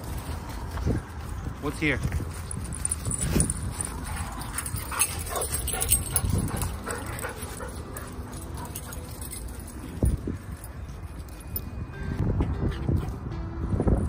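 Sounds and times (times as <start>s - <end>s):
dogs whining and yipping: 3.2s - 11.7s.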